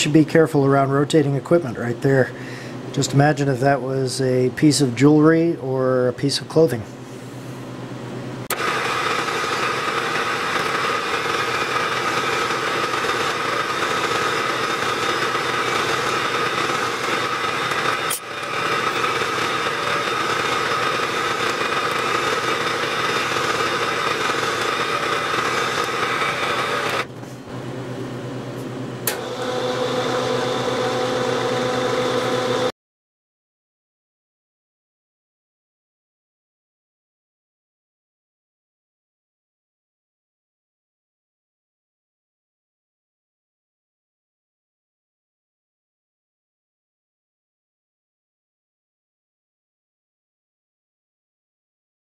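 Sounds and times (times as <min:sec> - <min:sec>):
milling machine spindle humming: 0:08.5 - 0:27.7, 0:29.0 - 0:32.7.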